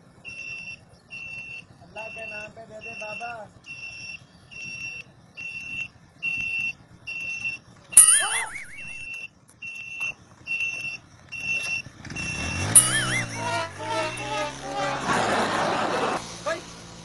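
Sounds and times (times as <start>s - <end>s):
warbling whistle: 8.0s - 9.1s, 12.5s - 14.8s
short high electronic beeps: 8.0s - 9.2s, 12.2s - 14.6s.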